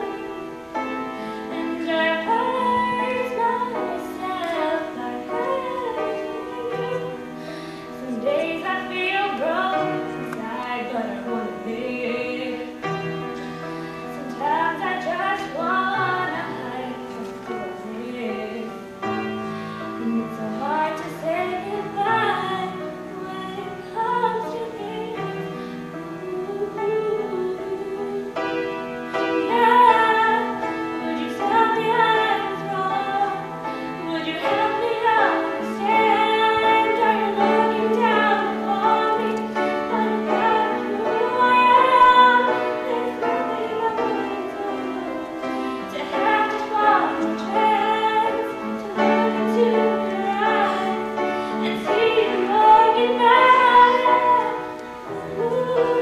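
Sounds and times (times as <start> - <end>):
girl singing into a microphone: 0.0 - 56.0
piano chords: 0.0 - 56.0.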